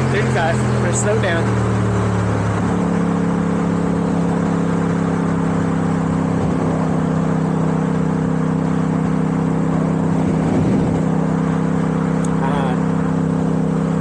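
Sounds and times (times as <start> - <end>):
motorcycle engine cruising: 0.0 - 14.0
wind rushing: 10.0 - 11.2.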